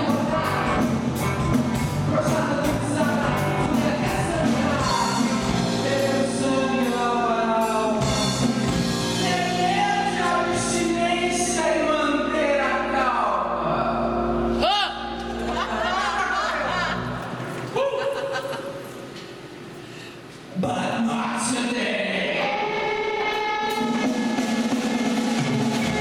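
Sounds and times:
woman singing lead: 0:00.0 - 0:01.3, 0:02.0 - 0:08.1, 0:09.1 - 0:13.4
drums: 0:00.0 - 0:11.6, 0:22.5 - 0:26.0
electric guitar: 0:00.0 - 0:16.0, 0:22.0 - 0:26.0
bass guitar: 0:00.0 - 0:17.6, 0:22.5 - 0:26.0.

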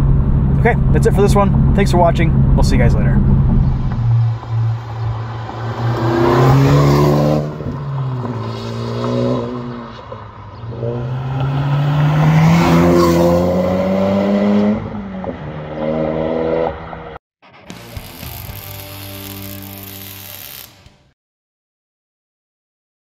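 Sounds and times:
car exhaust accelerating hard: 0:00.0 - 0:09.7.

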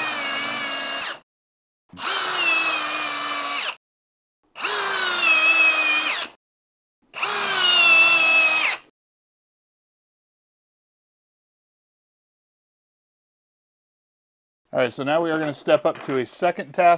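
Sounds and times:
drill driving screw into wood: 0:00.0 - 0:01.2, 0:01.9 - 0:03.8, 0:04.6 - 0:06.4, 0:07.1 - 0:08.9.

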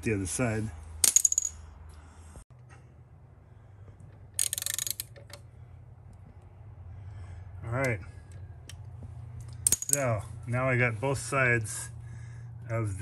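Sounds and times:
ratchet wrench clicking: 0:04.3 - 0:05.4.

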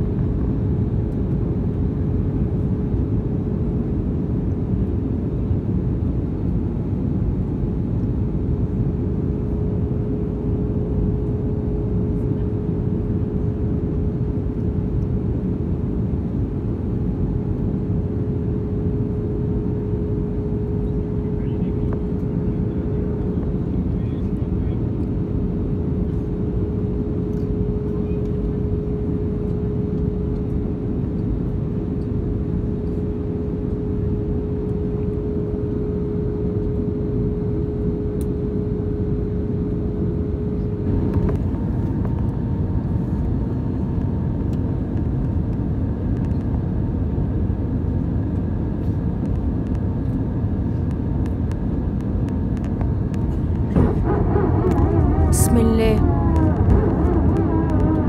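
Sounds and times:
jet engine and airflow roar: 0:00.0 - 0:58.0
steady cabin hum: 0:51.8 - 0:58.0
wavering tone: 0:53.8 - 0:58.0.

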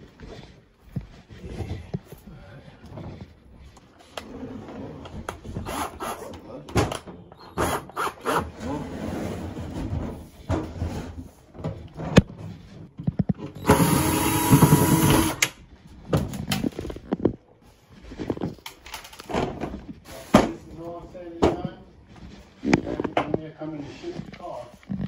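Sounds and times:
loud scraping grind: 0:07.6 - 0:11.2, 0:13.6 - 0:15.4.

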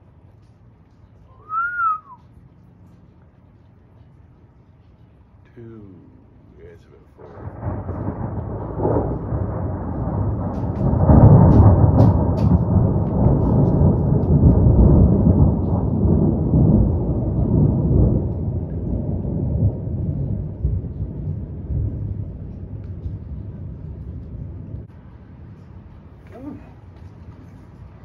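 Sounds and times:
rolling rumble of thunder: 0:06.0 - 0:28.0.

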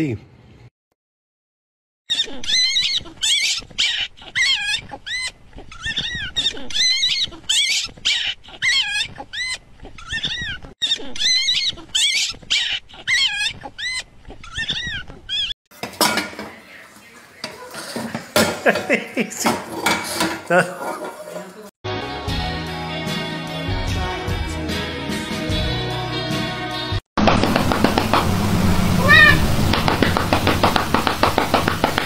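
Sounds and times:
puppy squealing and whining: 0:02.1 - 0:15.6, 0:29.0 - 0:29.5.

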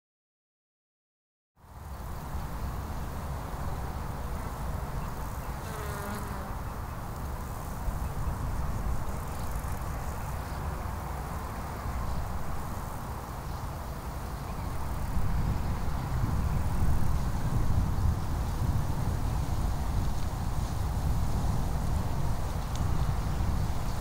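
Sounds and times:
insects buzzing: 0:01.7 - 0:20.8.

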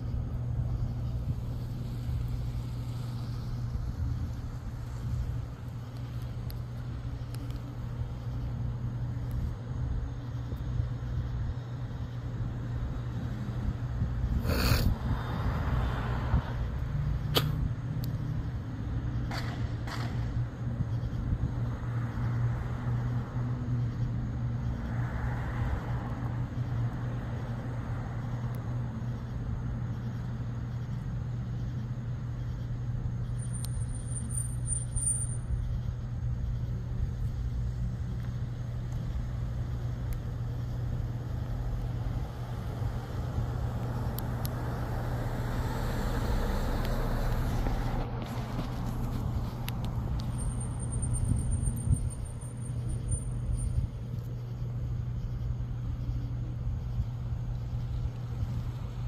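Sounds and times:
steady low hum: 0:00.0 - 0:15.2, 0:16.4 - 0:59.0
car traffic passing: 0:00.0 - 0:55.5
car passing close: 0:15.0 - 0:16.7, 0:42.0 - 0:50.6.

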